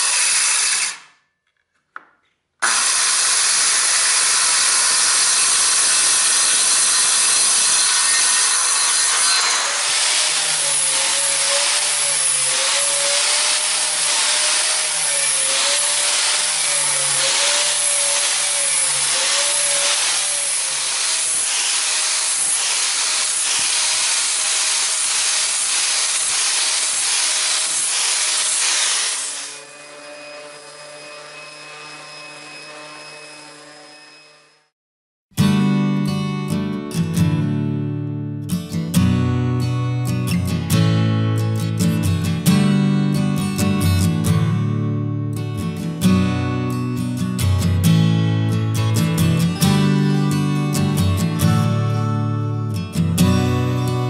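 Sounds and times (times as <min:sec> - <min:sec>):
angle grinder sanding wood: 0:00.0 - 0:01.0, 0:02.6 - 0:34.2.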